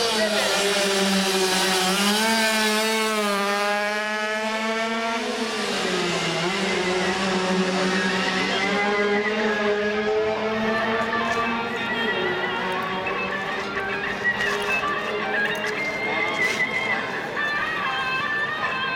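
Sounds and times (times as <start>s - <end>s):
motorcycle engine at high revs: 0.0s - 14.0s.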